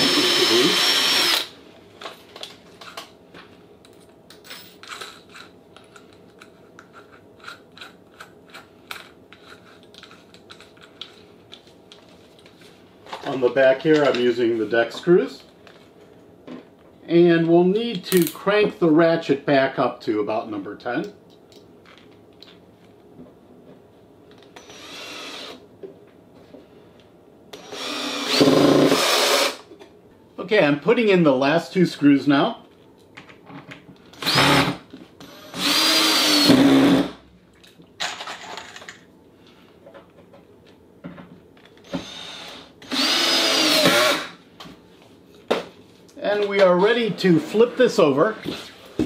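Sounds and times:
cordless drill whining: 0:00.0 - 0:01.5, 0:24.6 - 0:25.6, 0:27.6 - 0:29.6, 0:34.2 - 0:37.1, 0:41.9 - 0:44.3.

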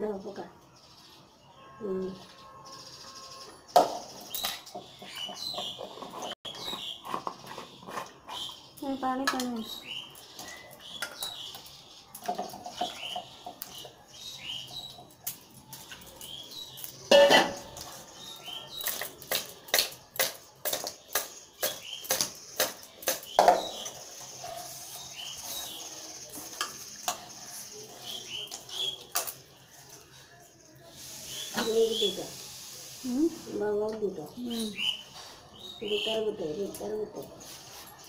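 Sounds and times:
small birds chirping: 0:00.0 - 0:38.0
steel pots and bowls clinking: 0:03.7 - 0:30.5.

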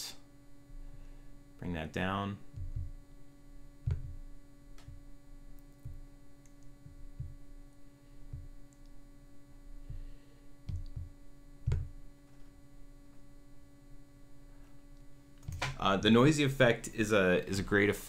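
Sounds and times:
electrical hum: 0:00.0 - 0:18.0
mouse knocking on desk: 0:02.5 - 0:03.0, 0:03.8 - 0:05.0, 0:10.6 - 0:12.0.

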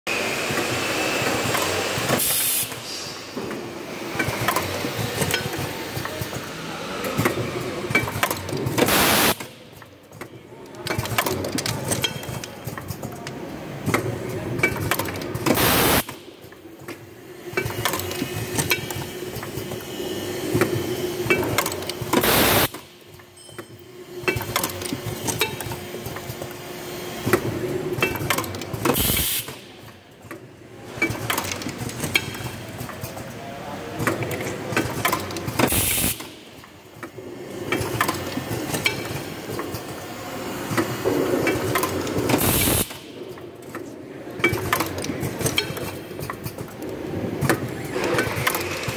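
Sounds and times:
machine clicking and clattering: 0:00.5 - 0:48.9
loud air hiss: 0:02.2 - 0:03.3.

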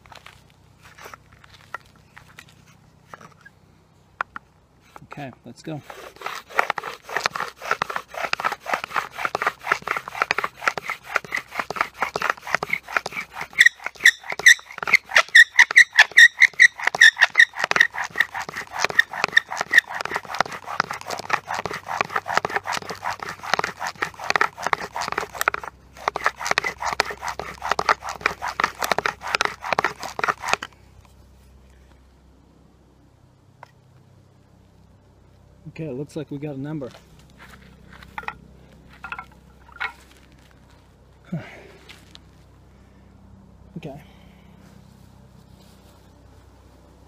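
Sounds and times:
bow drill spindle rasping and squeaking: 0:05.8 - 0:30.7, 0:39.0 - 0:40.0.

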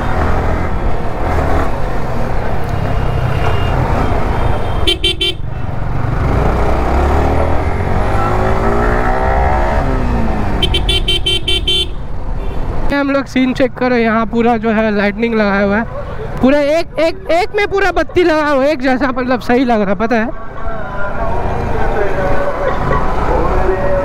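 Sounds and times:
horn beeps: 0:02.7 - 0:05.5, 0:10.6 - 0:12.6.

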